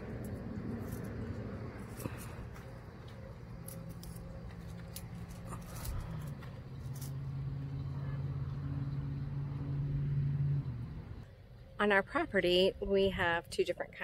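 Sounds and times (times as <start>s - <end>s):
branches crackling and rustling: 0.0s - 7.8s
low engine hum: 0.0s - 11.8s.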